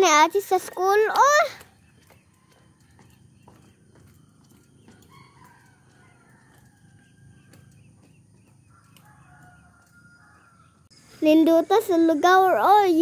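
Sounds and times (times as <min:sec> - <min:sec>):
faint rooster crowing: 0:02.2 - 0:10.9.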